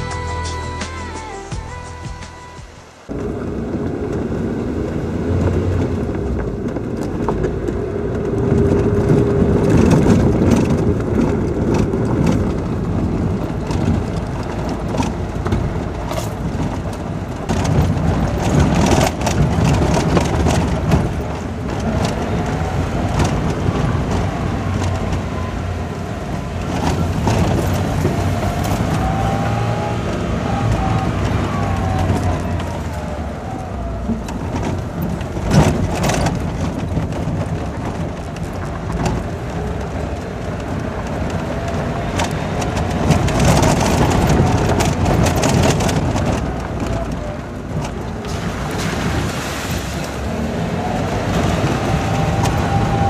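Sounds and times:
car engine running: 2.8 - 53.0
car knocks and rattles: 3.1 - 49.4.

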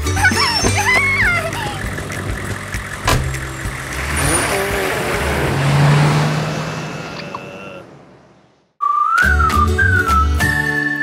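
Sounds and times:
car engine revving and driving off: 0.8 - 8.6
car door slamming: 3.0 - 3.4.

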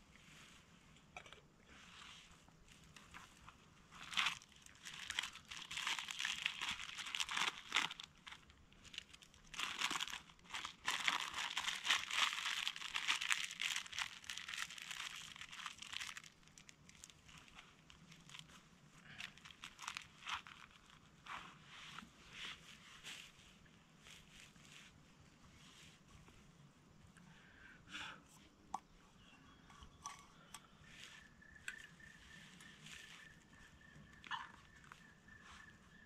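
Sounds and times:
packet wrapper crinkling: 4.0 - 21.0.

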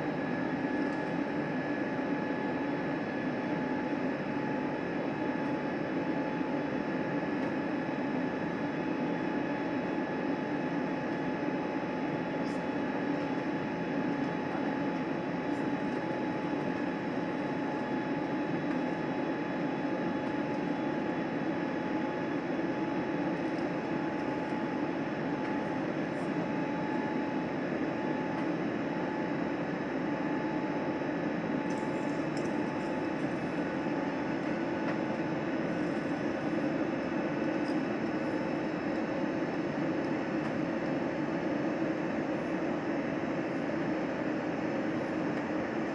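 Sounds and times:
jet engine drone: 0.0 - 45.9
thin steady whine: 0.0 - 45.9.

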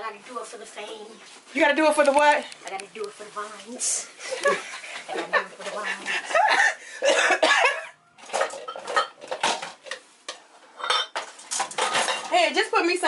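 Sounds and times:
dishes and cutlery clinking: 7.1 - 12.7.

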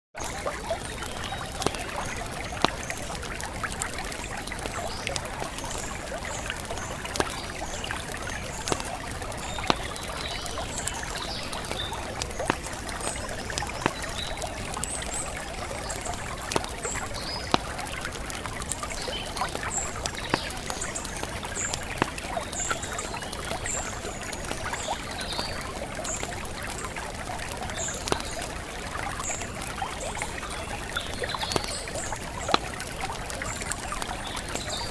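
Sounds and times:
trickling water: 0.2 - 34.9
sharp clicks: 31.0 - 33.1.

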